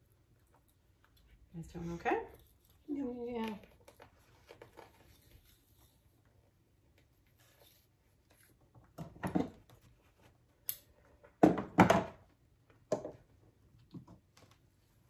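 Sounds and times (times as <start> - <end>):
small objects knocking on a table: 11.4 - 12.2.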